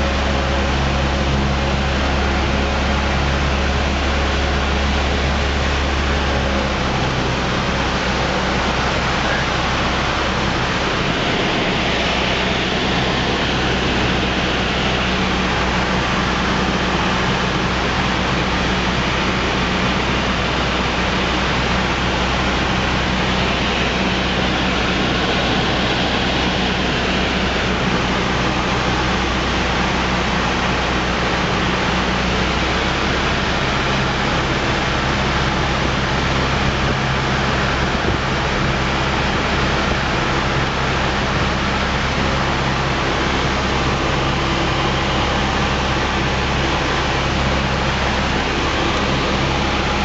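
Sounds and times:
airplane engine droning: 0.0s - 50.0s
airflow rushing: 41.6s - 50.0s.

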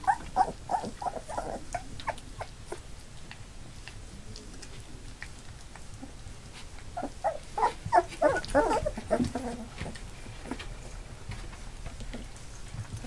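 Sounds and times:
puppies whimpering and squealing: 0.0s - 2.6s, 7.0s - 9.9s
faint ticks and rustles: 1.6s - 13.0s.

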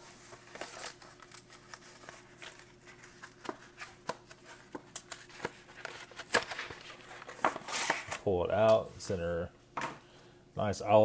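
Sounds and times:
cardboard rustling and scraping: 0.0s - 8.3s.

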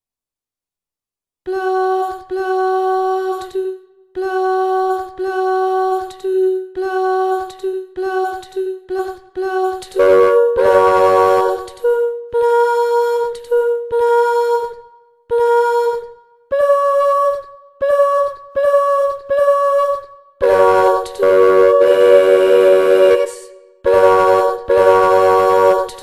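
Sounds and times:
sampled female voice singing syllables: 1.5s - 26.0s.

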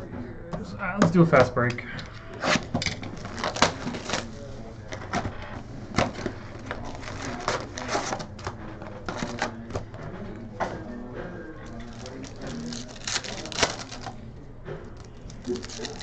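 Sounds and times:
cardboard and plastic wrap tearing: 2.4s - 9.8s, 11.7s - 14.2s, 15.0s - 16.0s.

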